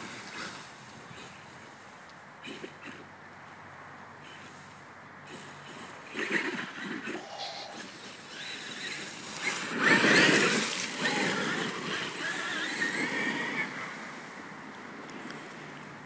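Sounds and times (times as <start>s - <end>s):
tyres rustling through dry leaves: 0.0s - 3.6s, 4.2s - 16.0s.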